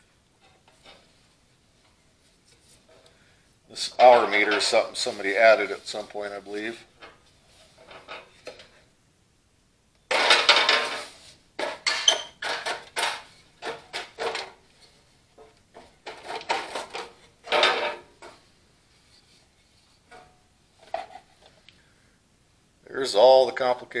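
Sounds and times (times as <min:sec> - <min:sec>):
metal scraping clatter: 0:10.1 - 0:18.4.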